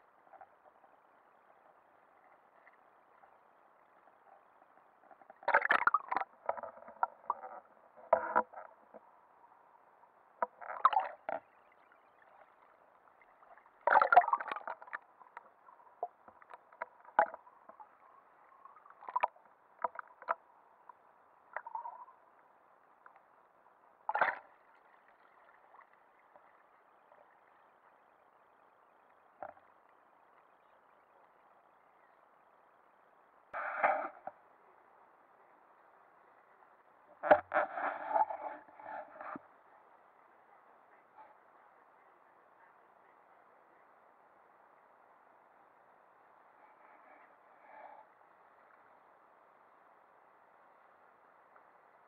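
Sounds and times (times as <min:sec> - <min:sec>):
muffled water sloshing against camera: 0:10.4 - 0:22.1.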